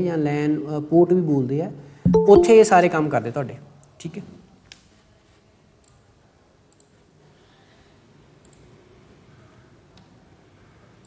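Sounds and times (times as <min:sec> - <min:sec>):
faint computer mouse clicks: 0:06.7 - 0:07.0, 0:08.4 - 0:08.7.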